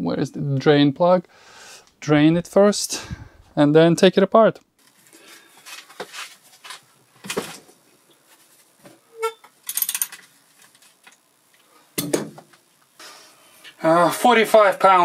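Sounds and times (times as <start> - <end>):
short squeak: 9.1 - 9.5.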